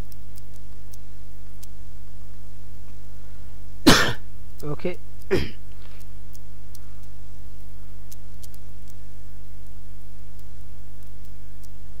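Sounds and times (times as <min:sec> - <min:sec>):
faint ticks: 0:00.0 - 0:01.8, 0:04.5 - 0:07.2, 0:08.0 - 0:09.0, 0:09.6 - 0:12.0
mains hum: 0:00.0 - 0:12.0.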